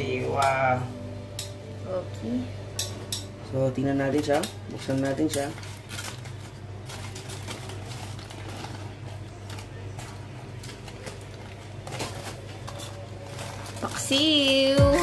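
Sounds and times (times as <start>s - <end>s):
aluminium foil crinkling: 3.6s - 15.0s.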